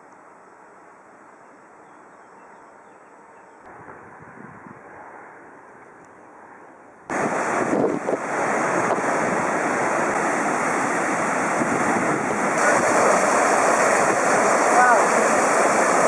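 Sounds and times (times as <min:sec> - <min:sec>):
faint hiss: 0:07.1 - 0:16.0
river rushing through gorge: 0:07.1 - 0:16.0.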